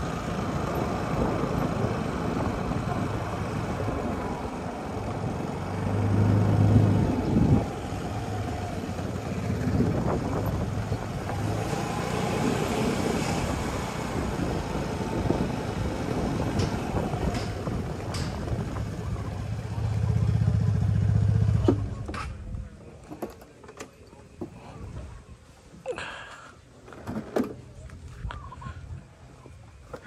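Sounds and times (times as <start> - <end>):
motorcycle engine running: 0.0 - 22.7
wind and road noise: 0.0 - 30.0.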